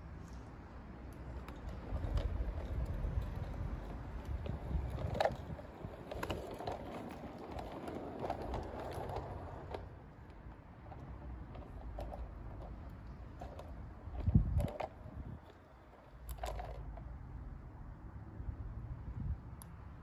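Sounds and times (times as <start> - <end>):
wheel clicks: 1.1 - 17.1.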